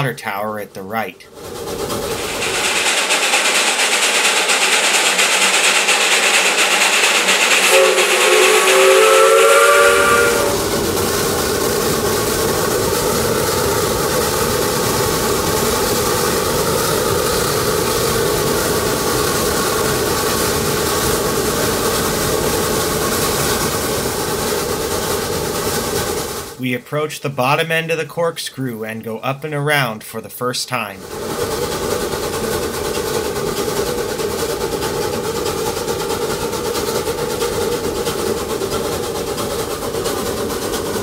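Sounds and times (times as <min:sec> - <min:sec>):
train running noise: 0:00.8 - 0:41.0
steam locomotive hissing: 0:01.3 - 0:28.8, 0:30.4 - 0:41.0
train whistle chord: 0:07.0 - 0:10.7.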